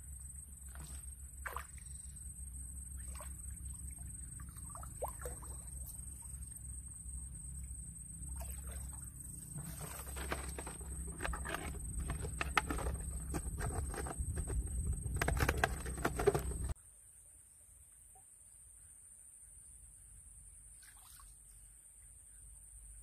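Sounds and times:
splashing in shallow water: 0.6s - 2.1s, 2.9s - 6.5s, 8.3s - 16.8s, 20.8s - 21.4s
rustling of stalks and grass: 9.5s - 16.8s
plastic bottle crinkling: 9.7s - 16.8s.

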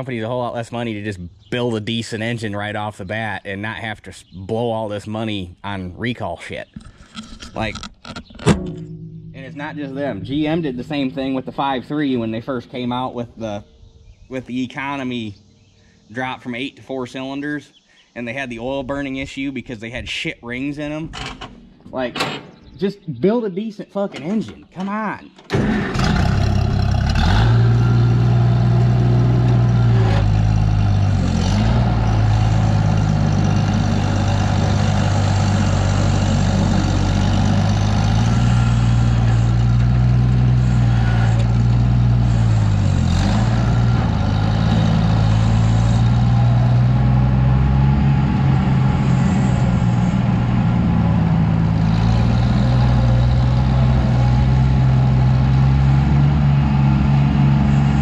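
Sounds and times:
tractor engine running: 6.6s - 12.9s, 25.5s - 58.0s.

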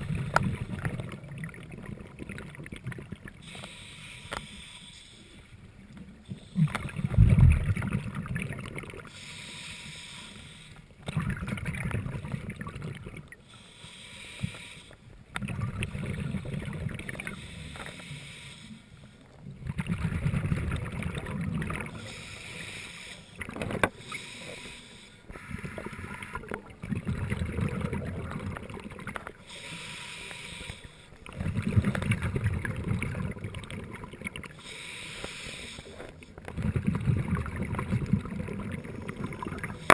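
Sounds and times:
exhaled bubbles underwater: 0.0s - 3.6s, 5.8s - 9.3s, 11.0s - 13.6s, 15.2s - 17.5s, 19.3s - 24.7s, 25.3s - 29.6s, 30.6s - 34.8s, 35.6s - 39.9s
regulator inhalation hiss: 3.4s - 5.5s, 9.1s - 10.9s, 13.4s - 15.1s, 17.3s - 19.2s, 22.0s - 23.4s, 24.0s - 26.4s, 29.4s - 31.2s, 34.6s - 36.1s.

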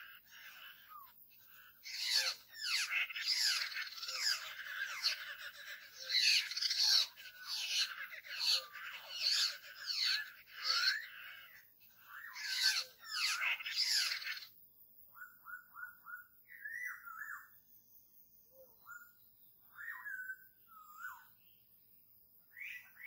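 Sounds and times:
laughingthrushes chattering calls: 0.0s - 14.6s.

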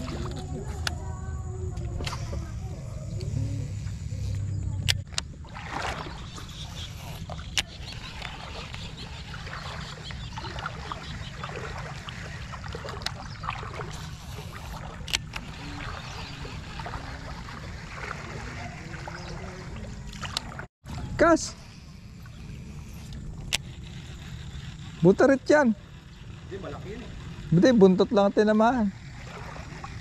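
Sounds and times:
water sloshing around legs: 0.0s - 1.1s, 1.8s - 21.1s, 28.9s - 30.0s.

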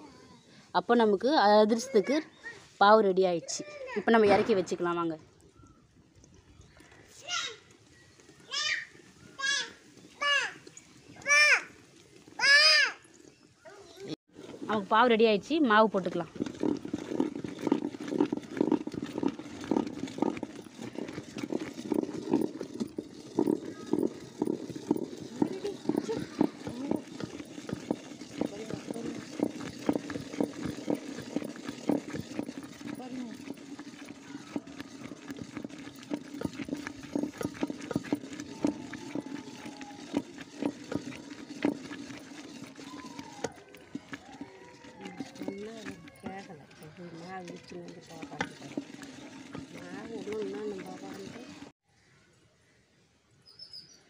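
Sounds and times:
wooden spatula stirring thick dough: 14.4s - 51.7s
wooden stick knocking metal pot: 16.5s - 51.7s.

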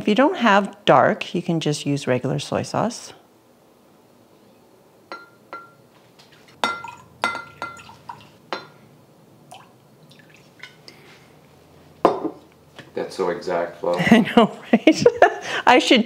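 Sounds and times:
glass clinks: 5.1s - 5.8s, 6.6s - 8.8s
faint liquid drips: 6.3s - 8.8s, 9.4s - 11.7s.

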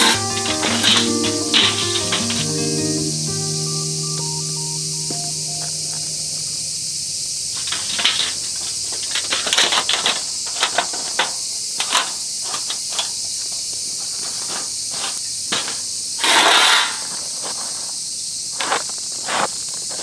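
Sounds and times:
high insect buzz: 0.0s - 19.9s
scraping rustle: 7.6s - 18.0s.

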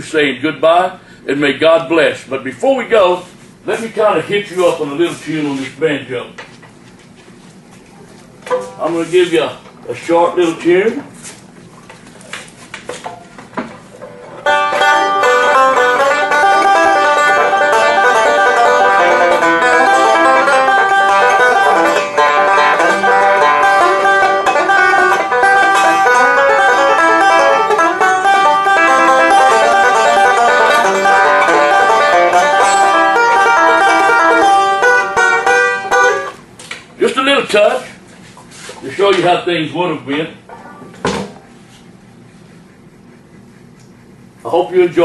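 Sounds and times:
banjo playing: 14.3s - 36.4s, 40.5s - 41.6s.

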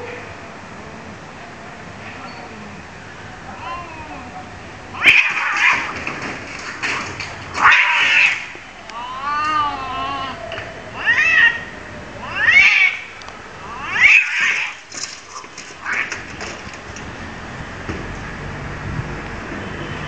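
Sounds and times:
cats screeching and yowling: 3.5s - 16.7s.

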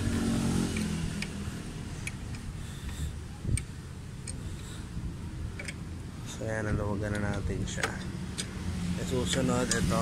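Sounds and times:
socket wrench clicking: 0.7s - 4.9s, 5.5s - 5.9s, 6.6s - 8.6s.

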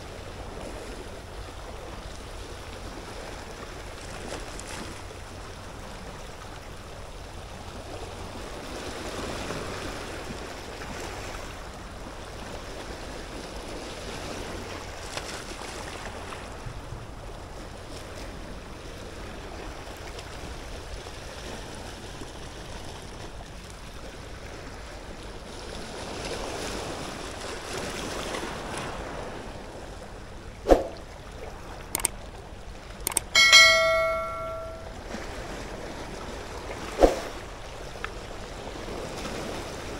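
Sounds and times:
sharp clicks: 32.0s - 32.2s, 33.1s - 33.3s
bright bell-like ringing tone: 33.1s - 35.0s.

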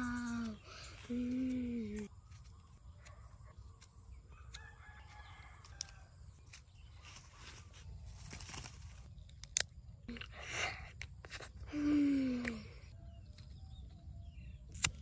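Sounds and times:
rooster crowing: 4.3s - 6.2s.

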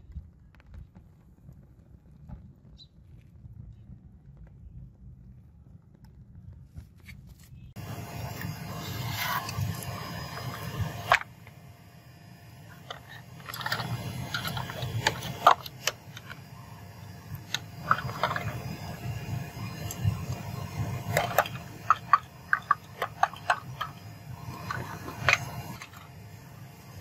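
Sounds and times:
metal scraping: 7.8s - 11.7s, 12.3s - 27.0s.

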